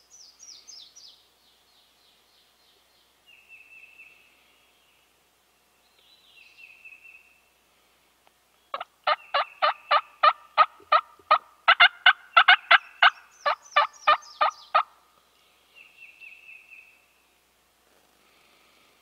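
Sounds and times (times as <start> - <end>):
turkey yelping: 8.7 - 14.9
songbird trilling: 12.3 - 14.8.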